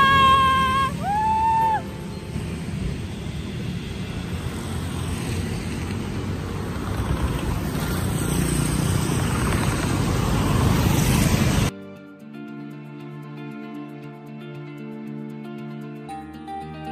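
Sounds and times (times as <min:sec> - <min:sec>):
road traffic: 0:00.0 - 0:11.7.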